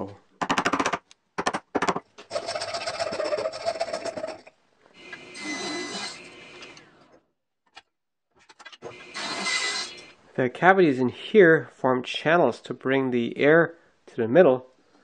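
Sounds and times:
table saw whine: 5.3 - 6.4.

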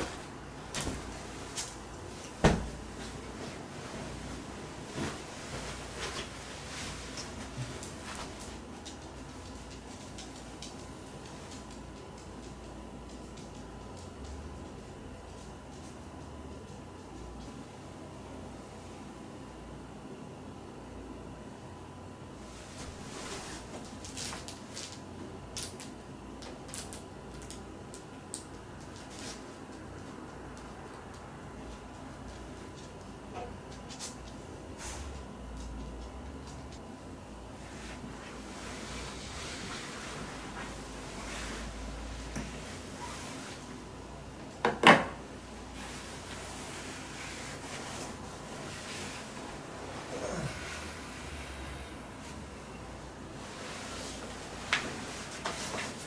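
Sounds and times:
bedding rustling: 0.0 - 12.2, 22.4 - 25.1, 37.5 - 44.6, 45.3 - 56.0.

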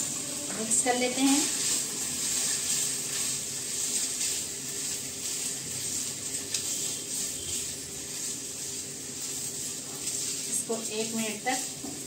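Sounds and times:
chicken sizzling in oil: 0.0 - 12.0
wooden spatula scraping pan: 0.4 - 12.0.

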